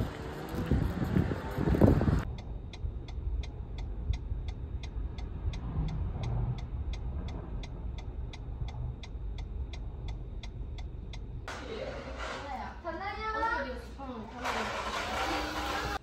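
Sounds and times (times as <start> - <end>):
car engine and road rumble: 0.0 - 11.5
turn signal ticking: 1.8 - 11.5.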